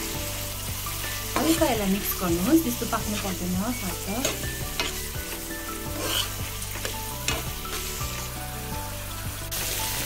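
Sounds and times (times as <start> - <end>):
food sizzling in a pan: 0.0 - 10.0
steel spoon scraping a pan: 1.0 - 8.4.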